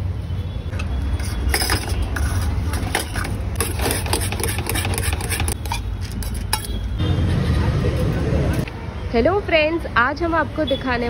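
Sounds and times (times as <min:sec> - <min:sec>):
metal spoon scraping a bowl: 0:01.1 - 0:07.0.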